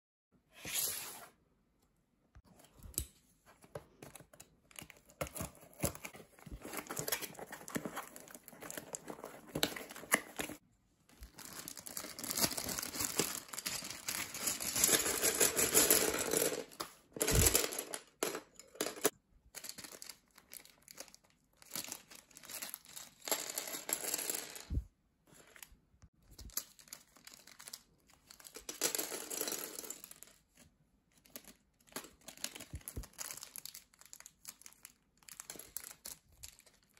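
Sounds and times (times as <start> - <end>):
plastic bags crinkling and tearing: 11.2 - 14.9
plastic pieces dropping on wooden floor: 12.3 - 20.0.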